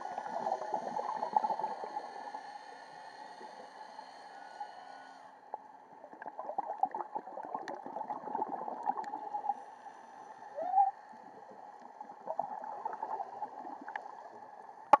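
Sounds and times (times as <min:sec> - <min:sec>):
muffled underwater bubbling: 0:05.9 - 0:09.6, 0:10.5 - 0:15.0.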